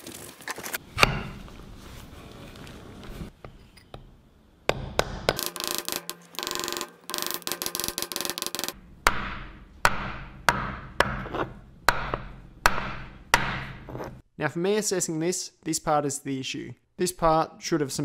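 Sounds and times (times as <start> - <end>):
hammer striking metal punch: 1.0 - 1.4, 9.0 - 14.0.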